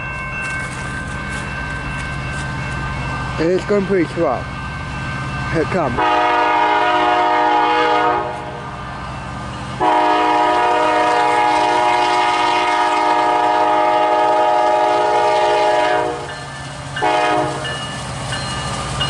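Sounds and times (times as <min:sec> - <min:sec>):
locomotive air horn: 0:06.0 - 0:08.6, 0:09.8 - 0:16.3, 0:17.0 - 0:17.6.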